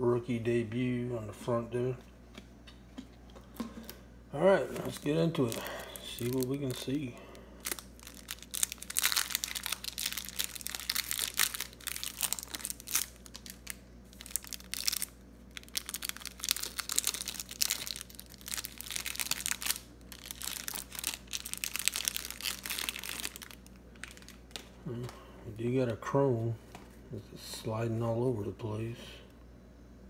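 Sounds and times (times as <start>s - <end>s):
plastic wrapper crinkling and tearing: 4.7s - 25.1s.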